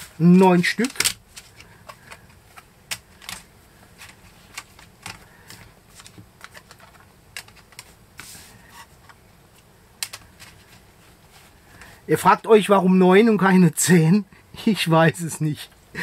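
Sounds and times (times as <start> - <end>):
plastic cards clicking and tapping: 0.5 - 8.0, 10.0 - 10.7.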